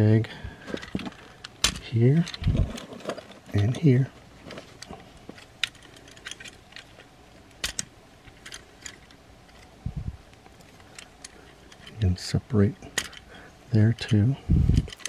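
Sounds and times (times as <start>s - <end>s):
plastic toy parts clicking: 0.7s - 3.9s, 7.6s - 9.7s, 12.9s - 13.2s, 14.8s - 15.0s.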